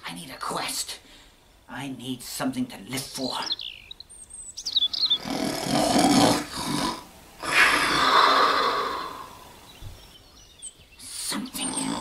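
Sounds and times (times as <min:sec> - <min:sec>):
person snoring: 0:05.2 - 0:09.4.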